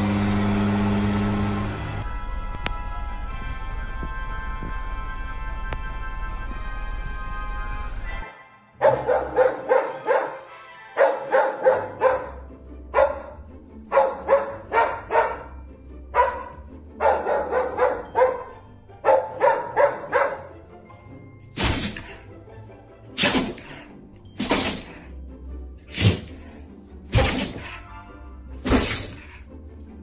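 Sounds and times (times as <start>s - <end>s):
music: 1.4s - 30.0s
small dog barking: 8.8s - 10.4s, 11.0s - 12.4s, 13.0s - 15.5s, 16.2s - 20.5s.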